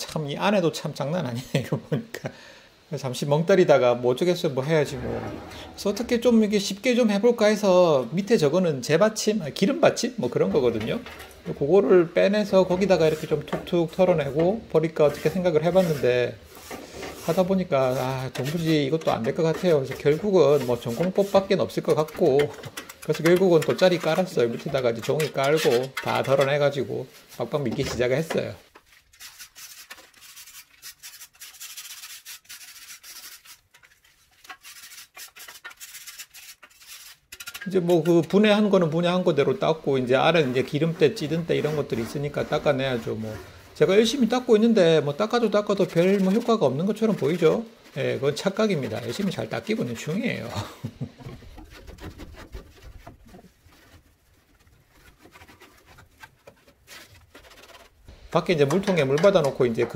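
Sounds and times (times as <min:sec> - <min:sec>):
wire brush scrubbing metal grill bars: 0:15.0 - 0:26.7, 0:29.0 - 0:38.4.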